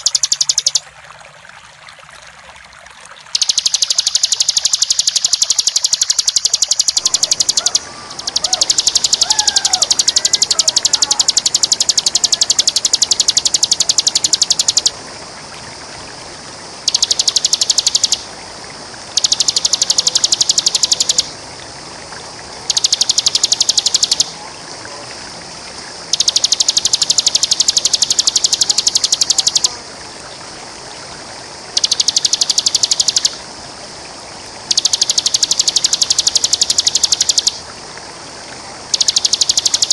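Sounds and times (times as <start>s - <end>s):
bird singing rapid high trill: 0.0s - 0.8s, 3.4s - 15.0s, 16.8s - 18.3s, 19.1s - 21.4s, 22.7s - 24.4s, 26.0s - 29.8s, 31.7s - 33.4s, 34.7s - 37.6s, 38.9s - 39.9s
waterfall rushing: 3.8s - 26.2s
faint calls of other birds: 7.0s - 11.4s.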